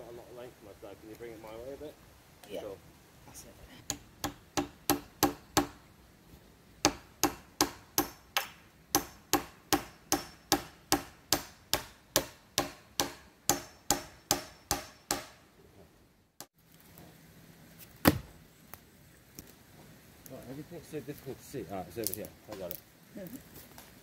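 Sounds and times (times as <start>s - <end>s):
hand tool striking wood: 3.9s - 5.8s, 6.8s - 15.4s, 18.0s - 18.3s.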